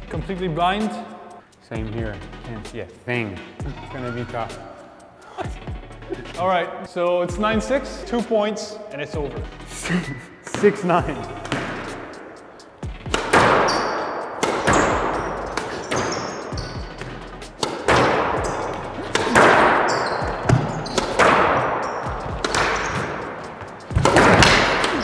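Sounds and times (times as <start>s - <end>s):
sneakers squeaking on wooden floor: 9.4s - 25.0s
squash ball hits: 11.4s - 12.1s, 13.0s - 25.0s.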